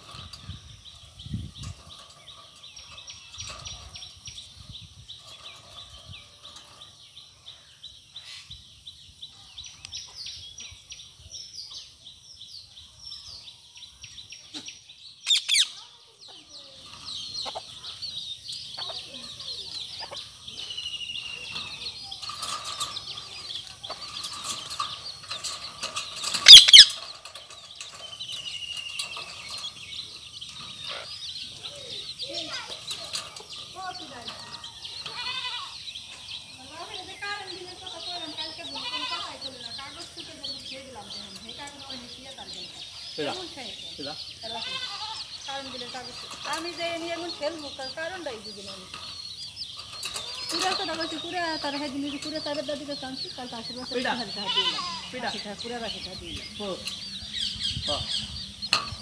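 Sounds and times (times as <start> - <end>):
bird twittering: 14.0 - 59.0
parakeet squawk: 26.5 - 26.9.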